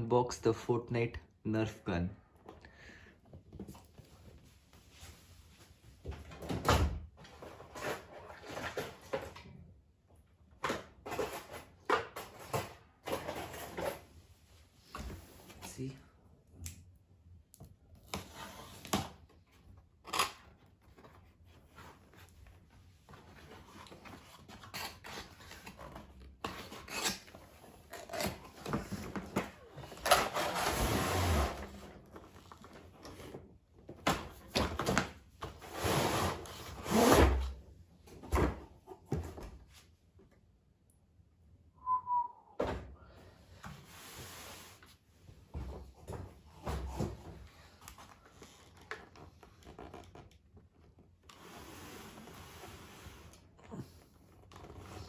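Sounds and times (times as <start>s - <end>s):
cardboard scraping and rubbing: 23.2s - 32.6s, 51.4s - 53.6s.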